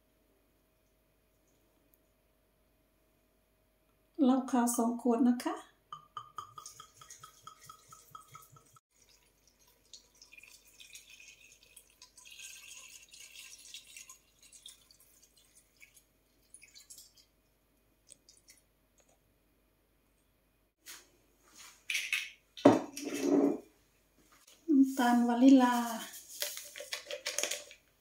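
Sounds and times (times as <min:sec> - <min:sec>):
liquid pouring into bowl: 0:06.0 - 0:19.1.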